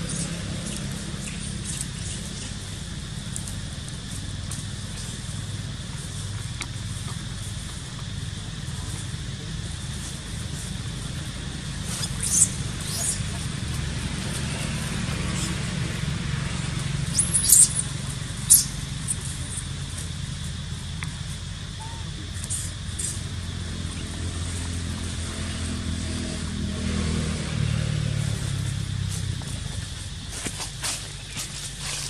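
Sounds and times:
low motor hum: 0.0s - 32.0s.

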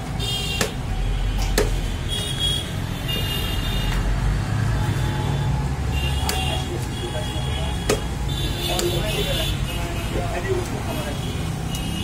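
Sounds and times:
street traffic rumble: 0.0s - 12.0s
cleaver chopping meat on wood: 0.6s - 1.8s, 6.2s - 6.6s, 7.8s - 9.0s.

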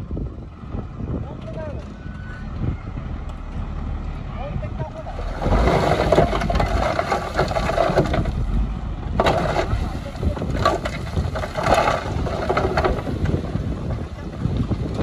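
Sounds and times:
dump truck diesel engine: 0.0s - 15.0s
wind buffeting microphone: 0.0s - 15.0s
soil dumping: 4.9s - 15.0s.

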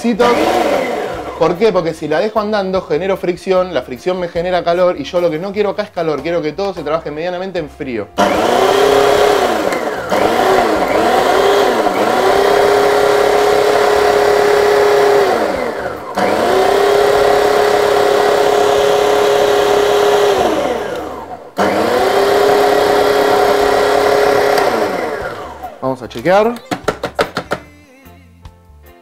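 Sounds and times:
food processor motor pulsing: 0.2s - 1.8s, 8.2s - 25.8s.

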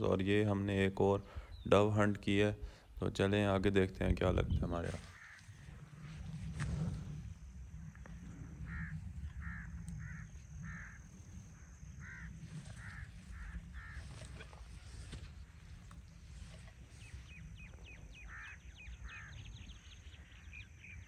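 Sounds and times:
low rumble: 3.8s - 20.3s
crows cawing: 4.8s - 15.5s, 17.8s - 20.5s.

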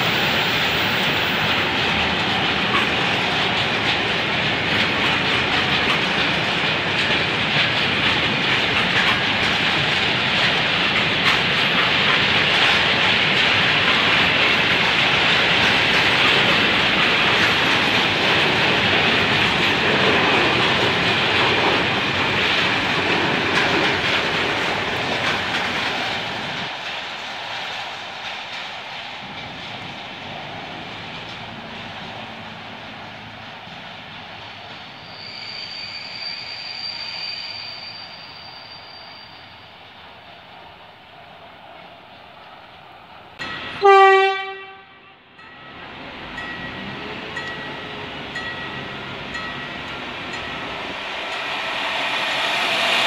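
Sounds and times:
train wheels on rail: 0.0s - 53.0s.

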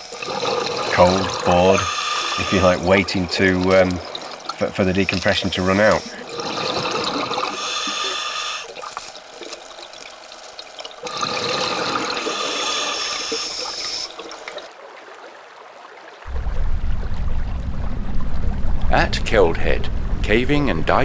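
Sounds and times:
diver exhaling bubbles: 0.1s - 8.9s, 11.0s - 14.6s
regulator breath in: 7.5s - 8.7s, 11.6s - 14.1s
low rumble: 16.3s - 20.9s.

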